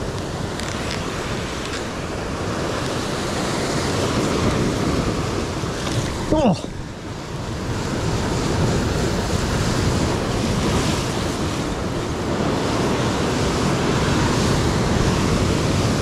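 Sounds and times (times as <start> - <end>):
surf breaking over rocks: 0.0 - 16.0
wind buffeting microphone: 0.0 - 16.0.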